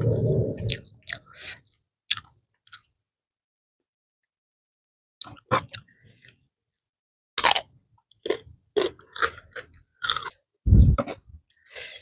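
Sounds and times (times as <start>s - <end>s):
chewing and mouth sounds: 2.1s - 2.9s.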